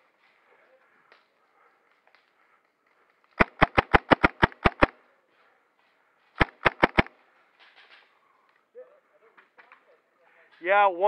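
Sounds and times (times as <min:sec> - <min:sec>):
airsoft pistol shots: 0:03.4 - 0:04.9, 0:06.4 - 0:07.1.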